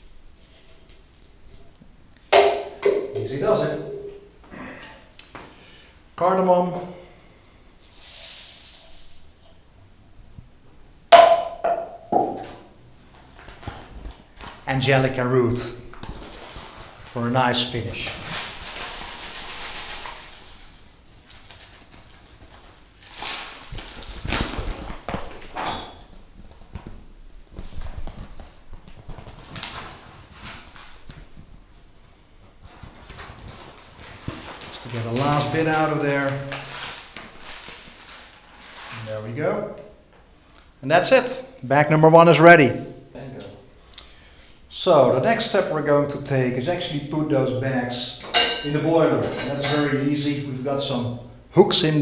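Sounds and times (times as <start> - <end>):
metal cup knocks: 2.4 - 3.3, 11.1 - 12.5
dry rustle of cardamom: 16.0 - 25.1, 32.6 - 39.3
paper bag crinkling: 16.0 - 25.6, 32.7 - 39.1.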